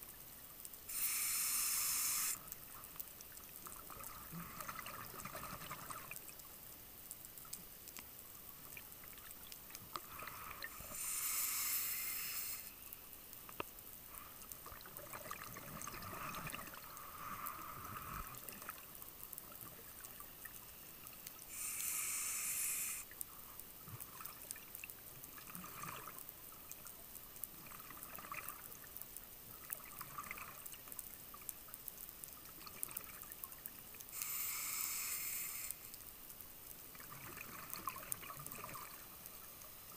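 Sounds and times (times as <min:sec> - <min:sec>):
regulator hissing: 0:00.9 - 0:02.4, 0:10.9 - 0:12.7, 0:21.5 - 0:23.0.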